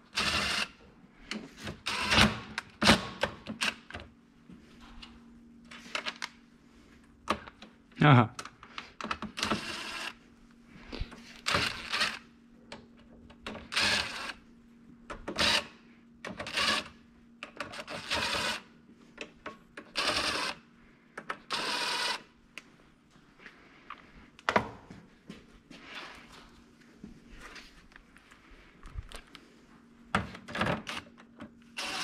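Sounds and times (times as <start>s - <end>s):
impact driver driving screws: 31.8s - 32.0s.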